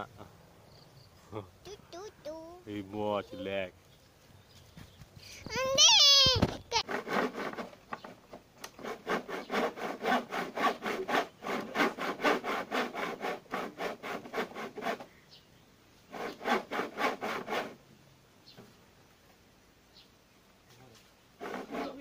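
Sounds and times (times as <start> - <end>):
hand saw cutting bamboo: 6.8 - 7.8, 8.6 - 15.1, 16.1 - 17.8, 21.4 - 22.0.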